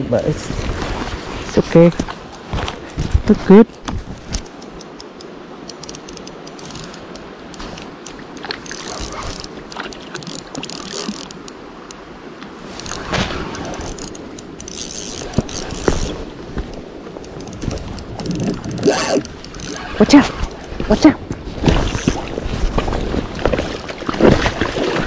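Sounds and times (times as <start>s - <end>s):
fishing reel gears clicking: 4.5s - 7.7s, 8.6s - 12.0s, 12.8s - 13.0s, 13.6s - 16.2s, 17.2s - 20.0s.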